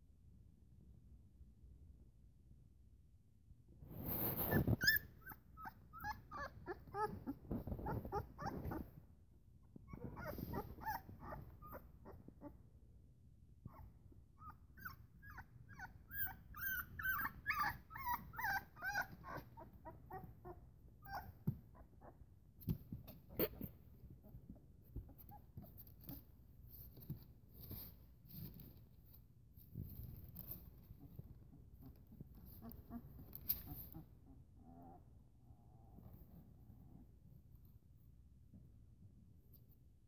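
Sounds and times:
rustling on a rug: 3.8 - 5.4, 6.8 - 12.6, 21.1 - 34.2
puppies whimpering and squeaking: 4.2 - 8.9, 9.8 - 12.5, 13.7 - 22.2.

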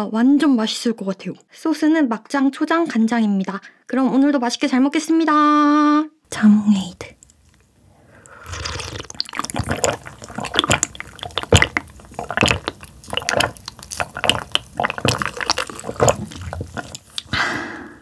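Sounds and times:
fizzy drink clicks and splashes: 8.5 - 17.3.

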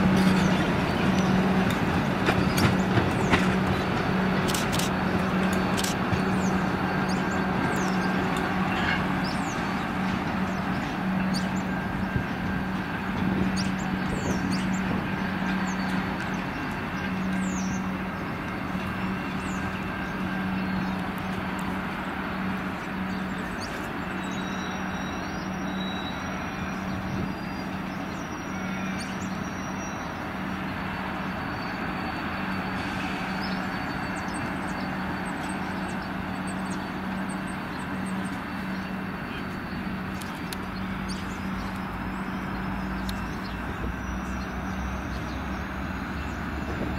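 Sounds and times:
diesel locomotive running: 0.0 - 46.9.

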